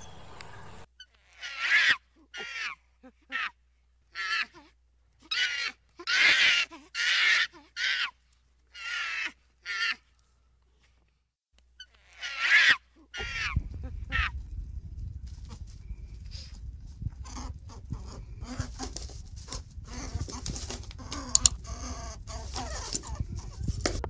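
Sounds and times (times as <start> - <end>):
low rumble: 13.3 - 22.6.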